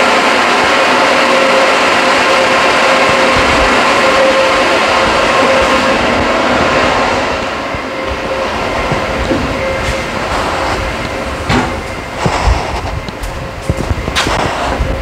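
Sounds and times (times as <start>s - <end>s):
ventilation fan whirring: 0.0s - 15.0s
sharp knocks and thumps: 11.4s - 12.0s.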